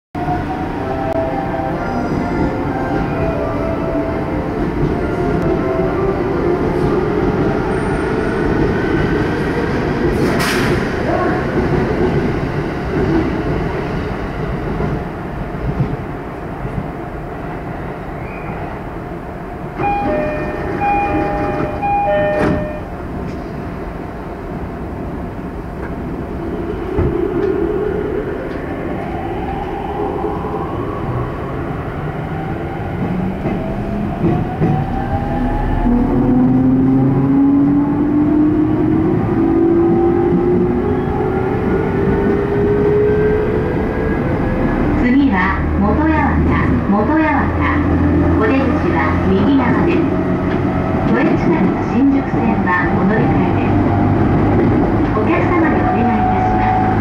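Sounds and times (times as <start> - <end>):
train rumble and hum: 0.2 - 57.0
two-tone electronic chime: 19.8 - 22.9.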